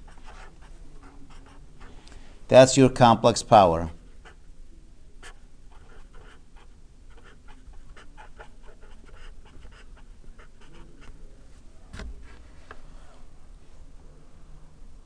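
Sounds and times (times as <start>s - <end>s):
marker writing on paper: 0.0s - 1.6s, 5.2s - 11.2s.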